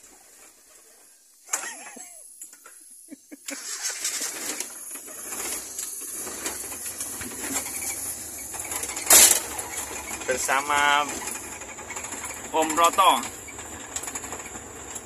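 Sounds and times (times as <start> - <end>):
van engine starting and running: 2.3 - 15.0.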